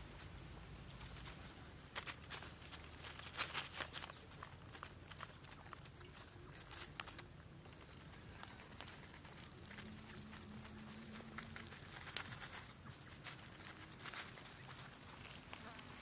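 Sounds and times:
dry leaves rustling and crunching: 0.0s - 16.0s.

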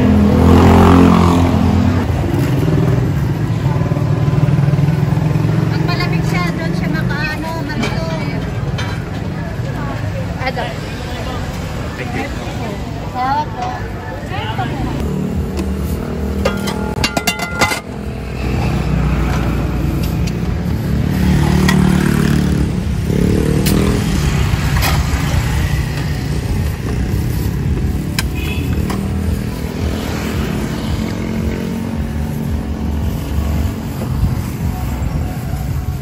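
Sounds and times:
vehicle engines passing: 0.0s - 36.0s
utensils clinking against pots: 15.6s - 18.3s.

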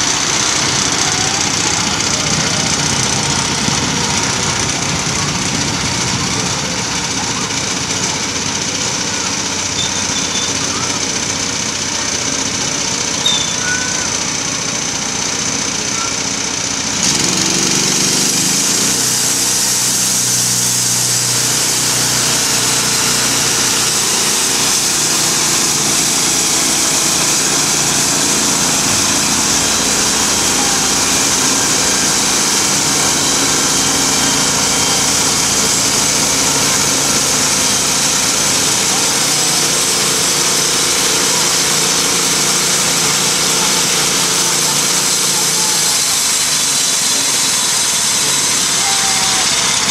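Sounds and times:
small gas engine running: 0.0s - 49.9s
band saw blade cutting log: 16.8s - 49.9s.

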